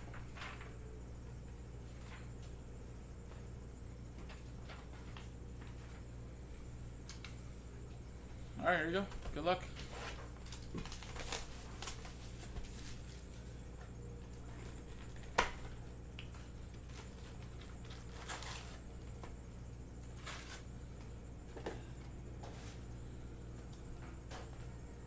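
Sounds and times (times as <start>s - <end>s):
steady low hum: 0.0s - 25.0s
foil packs being stacked: 9.7s - 13.4s, 16.6s - 19.4s, 20.0s - 22.9s
cardboard box being unwrapped: 10.0s - 13.3s, 16.9s - 18.9s, 20.2s - 20.6s.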